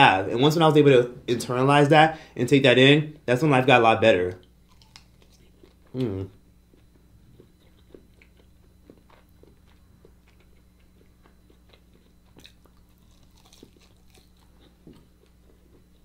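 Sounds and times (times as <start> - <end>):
steady low hum: 0.0 - 16.0
close-miked chewing and crunching: 4.4 - 16.0.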